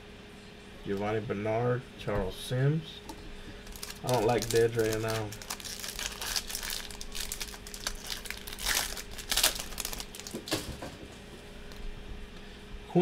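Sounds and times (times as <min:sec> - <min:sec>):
foil wrapper crinkling: 0:03.6 - 0:10.7.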